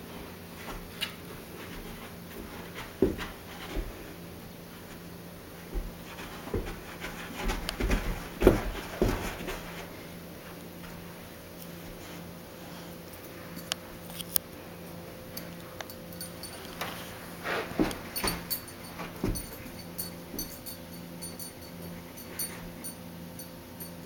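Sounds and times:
dog paws thumping on carpet: 0:00.1 - 0:12.3, 0:15.8 - 0:21.6.

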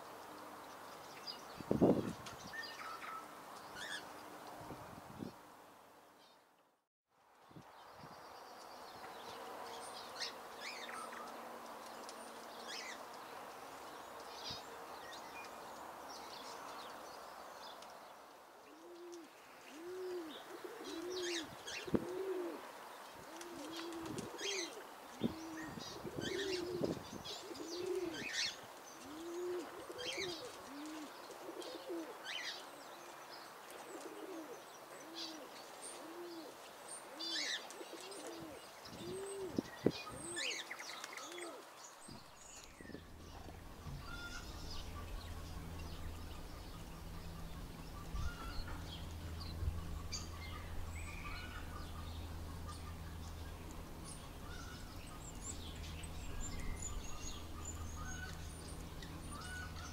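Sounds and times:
small birds chirping: 0:07.4 - 0:59.9
doves cooing: 0:18.7 - 0:32.8, 0:33.8 - 0:59.9.

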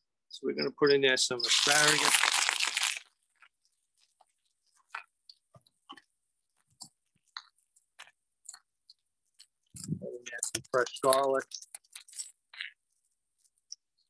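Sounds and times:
faint crackles and pops: 0:01.4 - 0:14.0
asparagus sizzling in a hot skillet: 0:01.5 - 0:02.9.

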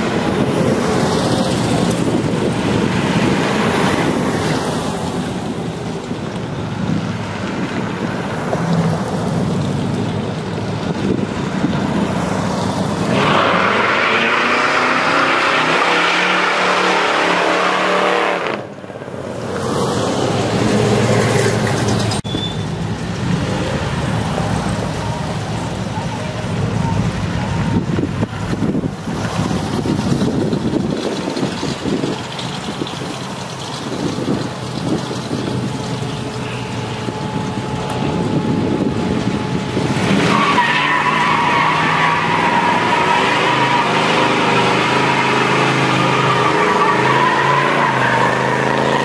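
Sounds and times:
cars driving past: 0:00.0 - 0:49.0
car accelerating hard: 0:11.0 - 0:18.7, 0:39.8 - 0:49.0.

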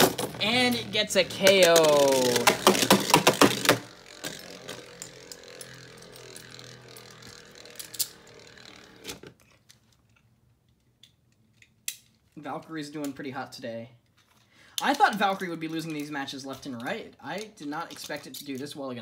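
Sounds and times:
spinning top whirring rattle: 0:00.0 - 0:09.3
plastic clicks and clacks: 0:01.4 - 0:03.8.

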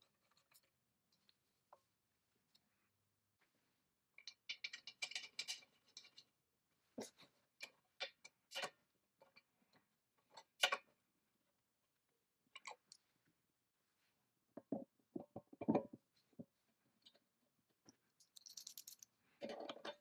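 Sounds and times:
small metal fasteners clicking: 0:04.3 - 0:06.2, 0:18.2 - 0:20.0.

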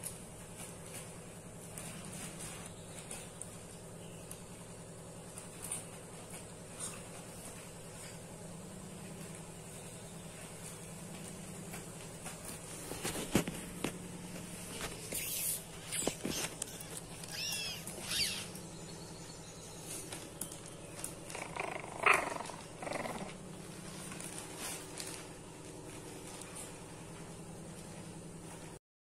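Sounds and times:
steady low hum: 0:00.0 - 0:28.8
puppies squeaking: 0:14.7 - 0:19.0
plastic sheeting rustling: 0:23.5 - 0:28.8.

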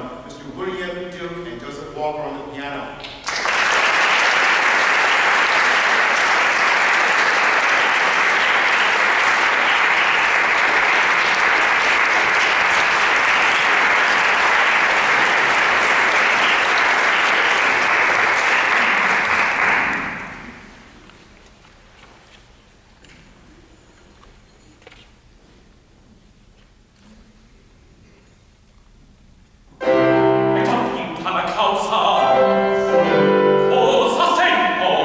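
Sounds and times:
audience applauding: 0:03.1 - 0:20.8.

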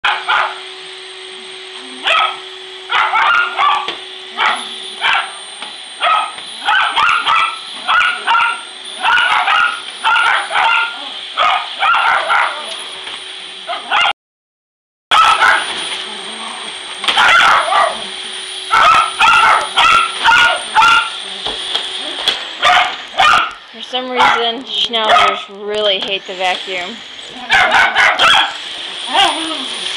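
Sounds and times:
dogs barking and yipping: 0:00.0 - 0:00.6, 0:02.0 - 0:12.9, 0:13.6 - 0:14.2, 0:15.1 - 0:15.8, 0:17.0 - 0:25.5, 0:27.2 - 0:29.9
vacuum cleaner motor hum: 0:00.0 - 0:14.1, 0:15.1 - 0:29.9.

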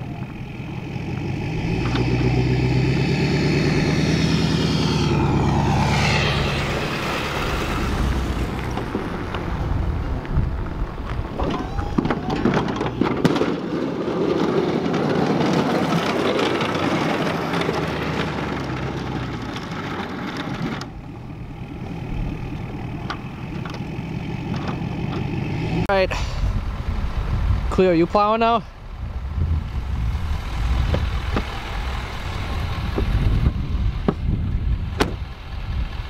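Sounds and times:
diesel truck engine driving past: 0:00.0 - 0:11.4, 0:12.8 - 0:27.2
plow pushing through snow: 0:00.0 - 0:25.9, 0:29.7 - 0:36.0.

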